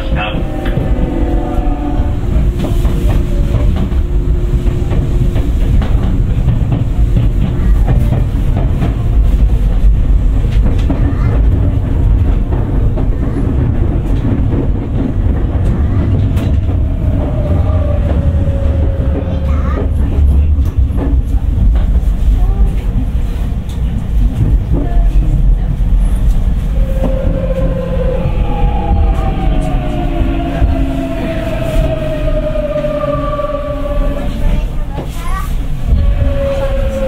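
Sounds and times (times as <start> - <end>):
steady motor tone: 0.0 - 6.6
slowly falling tone: 0.0 - 7.0, 14.8 - 21.0, 26.7 - 34.8
train wheels rumbling on rail: 0.0 - 37.0.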